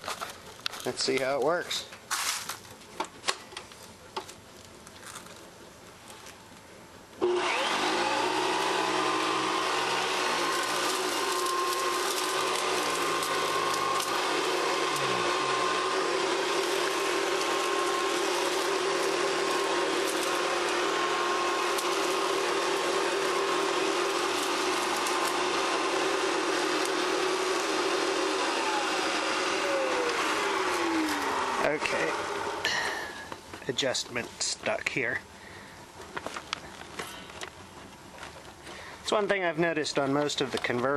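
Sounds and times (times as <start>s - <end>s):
vacuum cleaner motor whine: 7.2s - 33.4s.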